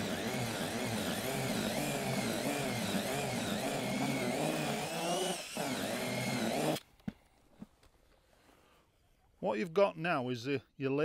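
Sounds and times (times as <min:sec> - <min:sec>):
cordless drill motor whine: 0:00.0 - 0:06.8.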